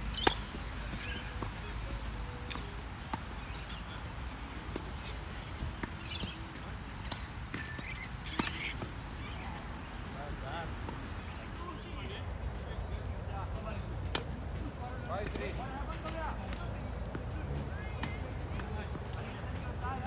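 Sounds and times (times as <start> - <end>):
birds chirping and squawking: 0.0 - 1.8, 2.4 - 10.2
tennis ball struck by rackets: 0.2 - 1.7, 2.4 - 3.8, 4.5 - 9.0.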